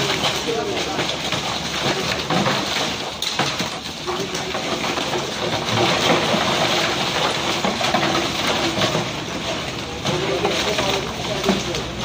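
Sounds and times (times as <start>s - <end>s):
steady engine noise: 3.9s - 12.0s.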